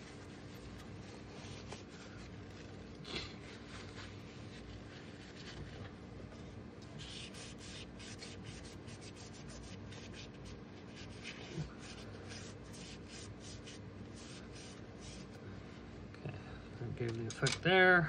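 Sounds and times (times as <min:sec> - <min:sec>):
quick rubbing strokes: 0:07.0 - 0:15.4.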